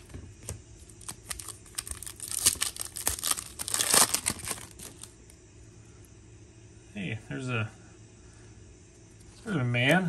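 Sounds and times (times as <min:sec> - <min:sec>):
foil wrapper crinkling: 0:00.8 - 0:05.2.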